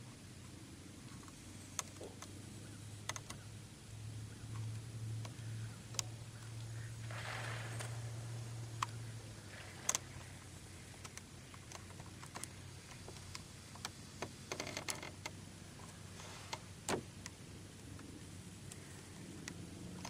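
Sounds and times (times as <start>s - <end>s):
low hum: 0.0s - 20.0s
small handling clicks and knocks: 10.9s - 20.0s.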